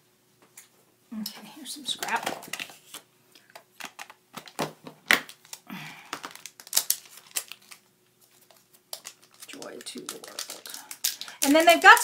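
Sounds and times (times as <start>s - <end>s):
plastic crinkling: 1.9s - 12.0s.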